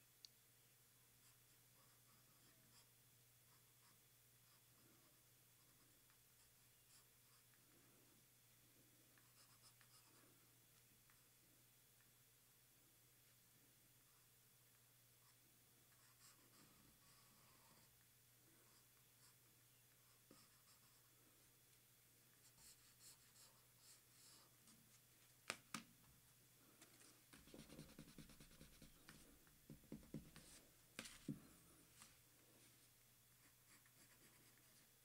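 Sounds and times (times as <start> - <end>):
pencil scratching on paper: 15.2 - 17.9, 22.4 - 24.5, 27.3 - 31.4, 33.4 - 34.9.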